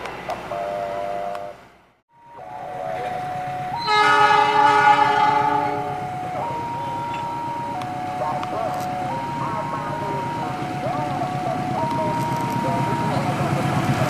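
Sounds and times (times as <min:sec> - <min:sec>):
steady pitched tones: 0:00.6 - 0:14.0
train horn blast: 0:03.8 - 0:06.0.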